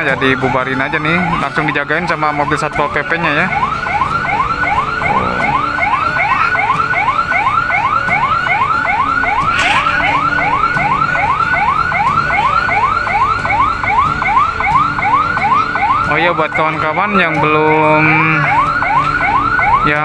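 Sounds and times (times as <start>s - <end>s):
siren yelping: 0.0s - 20.0s.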